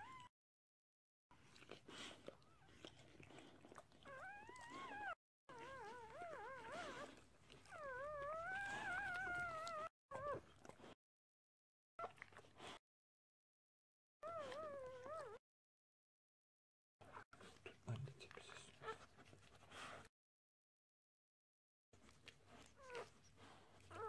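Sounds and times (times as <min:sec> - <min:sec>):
puppy crying squeals: 0:04.1 - 0:07.1, 0:07.7 - 0:10.4.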